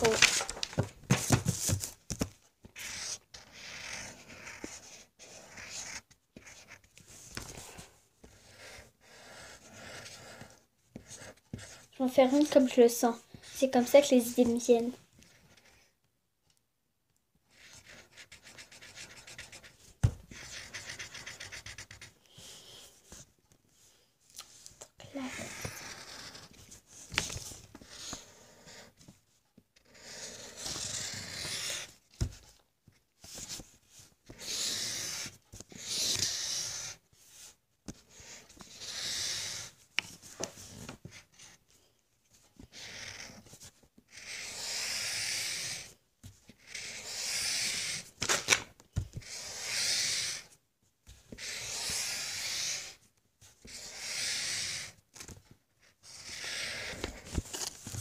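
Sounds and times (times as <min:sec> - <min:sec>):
pencil scribbling on paper: 0:02.8 - 0:07.3, 0:08.2 - 0:15.9, 0:17.5 - 0:23.3, 0:25.1 - 0:27.0, 0:27.7 - 0:29.0, 0:29.8 - 0:32.4, 0:33.4 - 0:39.8, 0:42.6 - 0:48.1, 0:49.2 - 0:50.5, 0:51.3 - 0:53.0, 0:53.6 - 0:55.0, 0:56.0 - 0:57.2.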